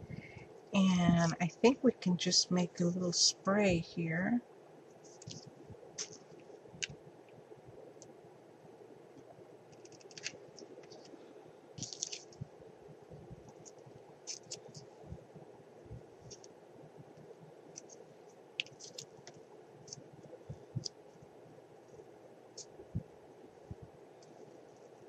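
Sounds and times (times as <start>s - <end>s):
faint steady hum: 0.0s - 25.0s
clicks and scratches of crafting: 5.0s - 7.0s, 9.7s - 11.2s, 11.8s - 12.4s, 13.5s - 14.9s, 18.6s - 20.0s.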